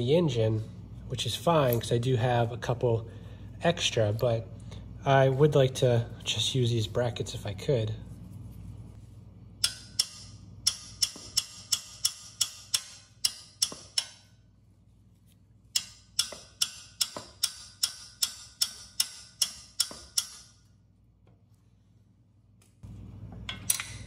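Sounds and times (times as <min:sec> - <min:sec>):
hammer tapping on metal wrench: 0:09.6 - 0:14.3, 0:15.7 - 0:20.6.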